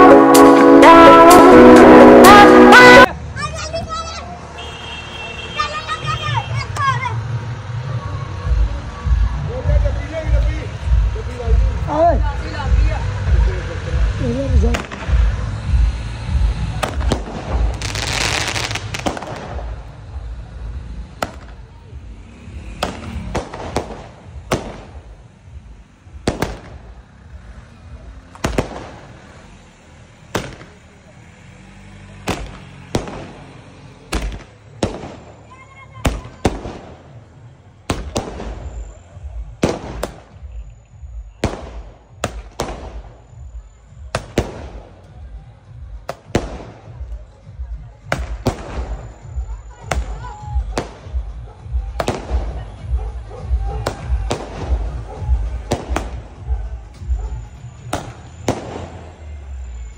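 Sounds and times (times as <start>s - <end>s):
firework bangs: 14.0s - 27.5s, 28.3s - 29.4s, 30.2s - 31.0s, 32.2s - 45.0s, 46.0s - 47.2s, 48.0s - 59.8s.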